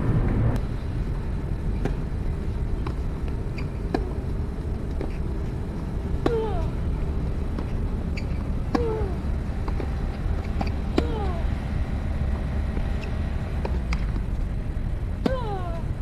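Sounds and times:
low background rumble: 0:00.0 - 0:16.0
tennis ball bouncing: 0:01.8 - 0:11.6, 0:12.2 - 0:14.4
racket hitting ball: 0:02.8 - 0:04.3, 0:06.1 - 0:06.7, 0:07.5 - 0:11.6, 0:12.3 - 0:14.3.

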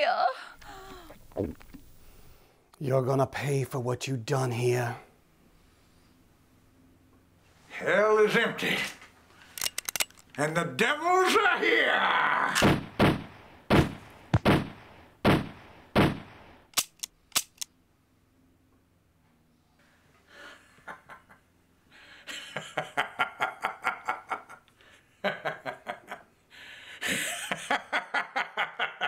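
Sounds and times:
pistol shots: 0:12.6 - 0:17.5
person laughing: 0:27.0 - 0:29.0.

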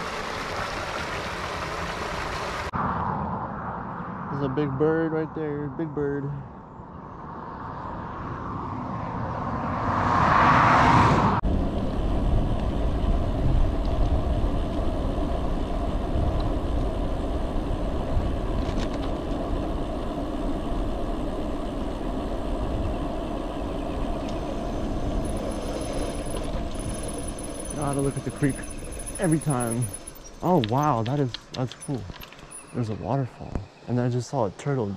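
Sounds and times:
passing vehicle rush: 0:00.0 - 0:05.7, 0:06.3 - 0:16.2, 0:22.5 - 0:32.8
bike tyre noise on road: 0:06.2 - 0:33.9
wind noise: 0:06.8 - 0:33.8.

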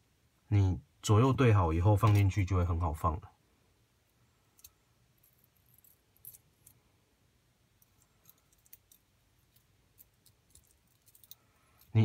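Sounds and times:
small metal parts clicking: 0:04.5 - 0:06.8, 0:07.8 - 0:12.0.

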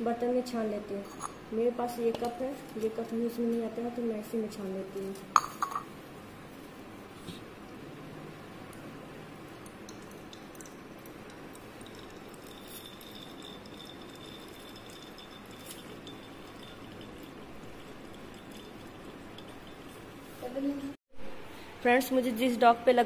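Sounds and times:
oil pouring in a thin stream: 0:09.9 - 0:20.2.

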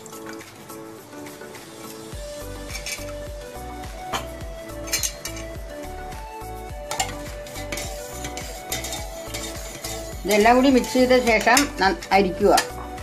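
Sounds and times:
background music with steady beat: 0:00.0 - 0:13.0
spoon against steel bowl: 0:04.2 - 0:05.6, 0:06.9 - 0:11.8.

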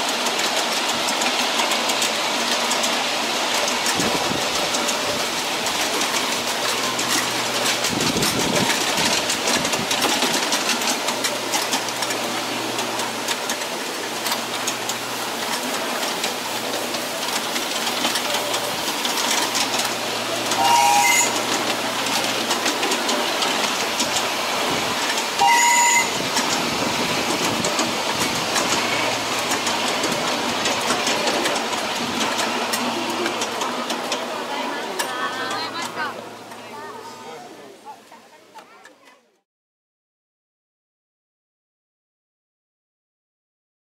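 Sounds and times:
train wheels clicking over rails: 0:00.0 - 0:36.8
train whistle blasts: 0:20.5 - 0:21.5, 0:25.4 - 0:26.2.

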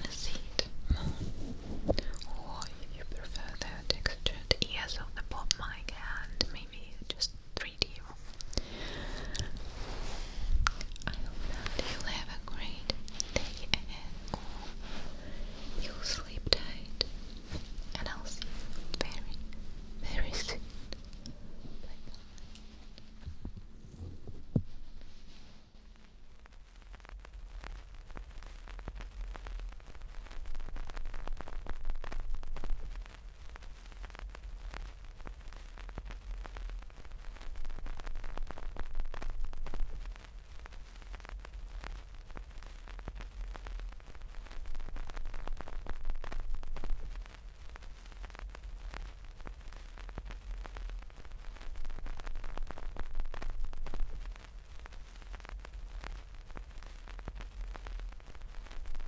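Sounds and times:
deep rumble: 0:00.0 - 0:04.3, 0:06.2 - 0:27.7
fingers rubbing microphone windscreen: 0:22.8 - 0:25.6.

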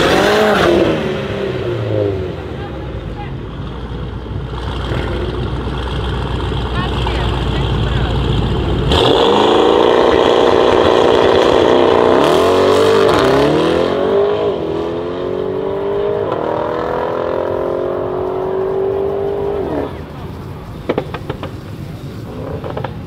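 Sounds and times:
car engine accelerating at full throttle: 0:00.0 - 0:02.6, 0:04.4 - 0:20.1.

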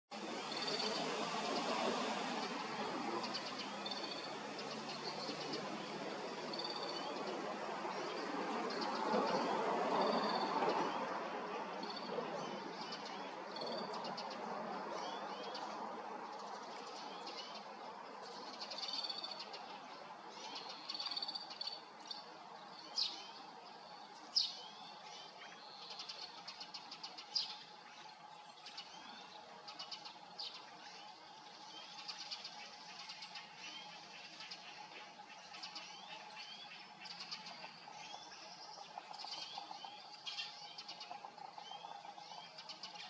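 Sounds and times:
songbirds chirping: 0:00.2 - 0:43.0.

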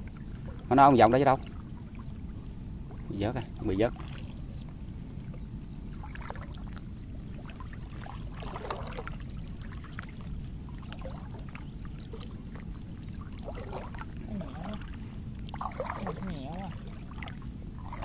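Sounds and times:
steady low rumble: 0:00.0 - 0:18.0
water splashing and dripping: 0:07.5 - 0:18.0.

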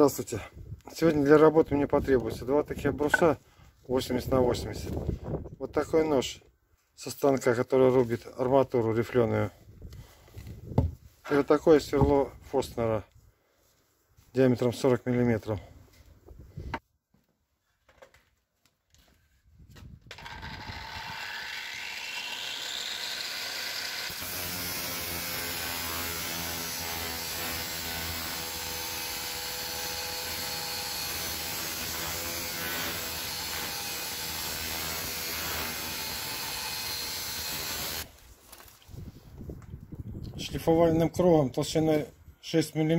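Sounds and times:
angle grinder grinding steel: 0:20.1 - 0:38.1.

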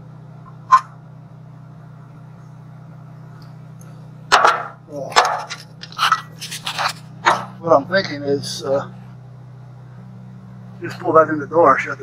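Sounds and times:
steady low hum: 0:00.0 - 0:12.0
steel pieces knocking and clattering: 0:04.3 - 0:07.5.

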